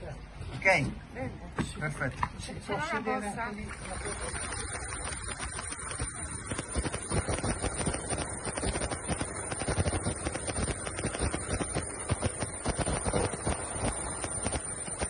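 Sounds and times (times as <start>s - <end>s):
helicopter rotor beating: 3.7s - 15.0s.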